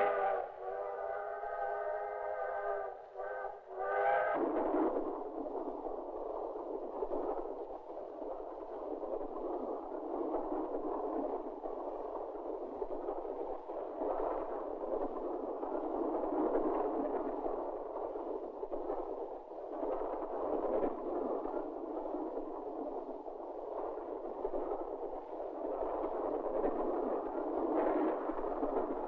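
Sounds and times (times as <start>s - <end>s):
moving train running: 0.0s - 4.6s.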